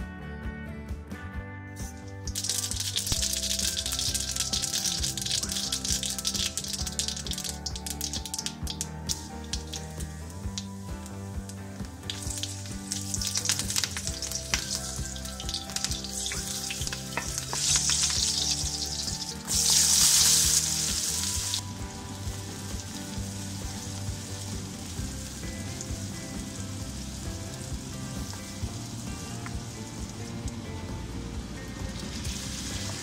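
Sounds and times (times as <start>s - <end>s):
seeds sizzling in hot oil: 1.8s - 30.3s, 31.9s - 33.0s
rush of sizzling: 1.8s - 33.0s
sharp popping crackles: 1.9s - 21.6s.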